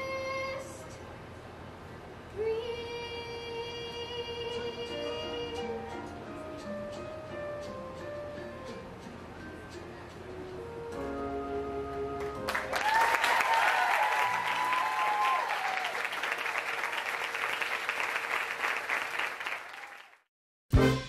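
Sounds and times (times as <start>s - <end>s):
backing track held chord: 4.9s - 12.7s
audience applause: 12.2s - 20.3s
audience cheering: 12.5s - 20.2s.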